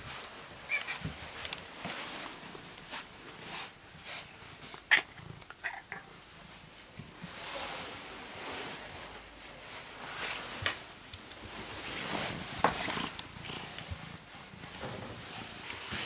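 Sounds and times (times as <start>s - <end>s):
cat purring: 12.8s - 14.2s.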